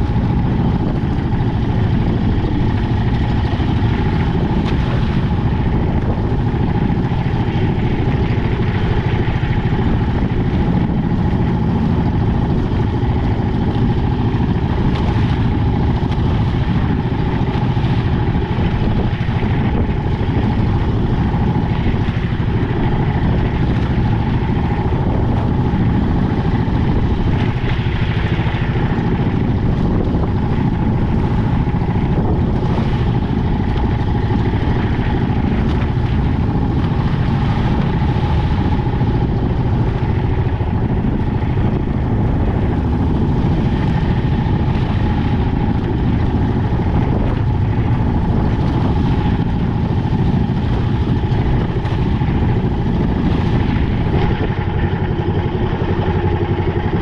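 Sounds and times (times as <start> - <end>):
boat engine running: 0.0 - 57.0
hull slapping through waves: 0.0 - 57.0.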